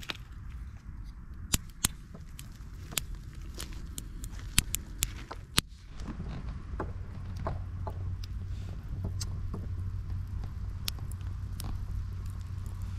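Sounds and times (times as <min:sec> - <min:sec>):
steady low rumble: 0:00.0 - 0:12.9
wood fire crackling: 0:00.0 - 0:12.9
sharp pops and clicks of sticks: 0:01.4 - 0:05.7.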